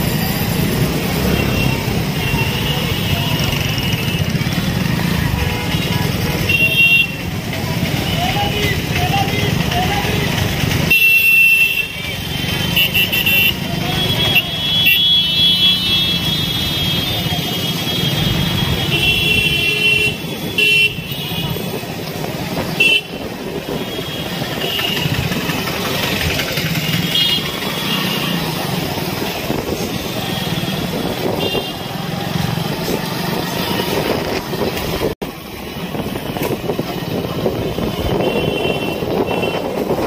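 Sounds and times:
motorcycle engine: 0.0s - 40.0s
road noise: 0.0s - 40.0s
horn honks: 37.7s - 40.0s.

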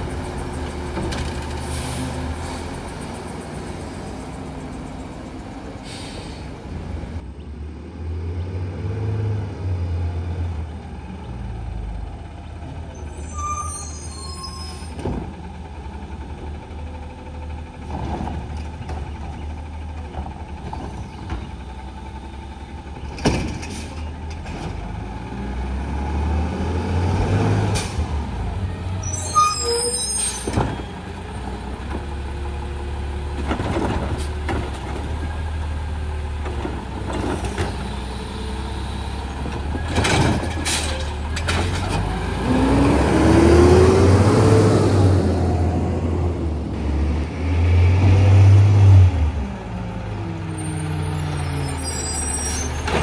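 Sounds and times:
diesel engine revving: 0.0s - 12.4s, 14.9s - 29.2s, 30.3s - 53.0s
air brakes hissing: 5.8s - 6.6s.

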